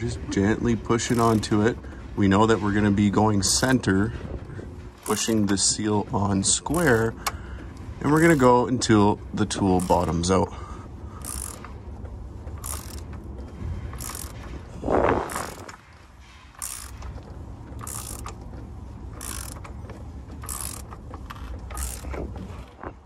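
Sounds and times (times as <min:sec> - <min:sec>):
ratchet wrench clicking: 0:01.0 - 0:01.7, 0:05.0 - 0:05.5, 0:06.7 - 0:07.4, 0:08.1 - 0:08.6, 0:09.8 - 0:10.3, 0:11.2 - 0:11.8, 0:12.5 - 0:13.2, 0:13.9 - 0:14.5, 0:15.3 - 0:15.8, 0:16.5 - 0:18.5, 0:19.1 - 0:22.4
low scraping noise: 0:13.6 - 0:16.9.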